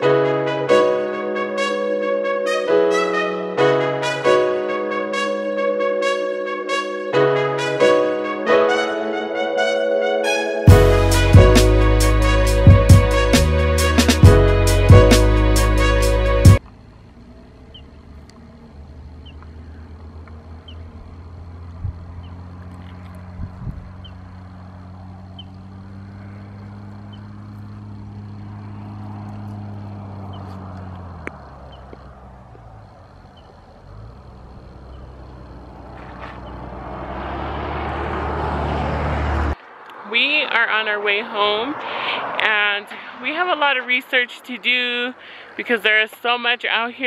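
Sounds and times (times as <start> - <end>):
vehicle engine idling: 10.7 - 39.8
wind noise on microphone: 21.8 - 22.1, 23.2 - 24.1.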